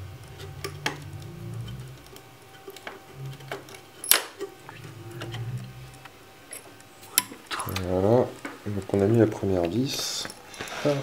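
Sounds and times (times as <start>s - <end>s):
low hum: 0.0s - 10.5s.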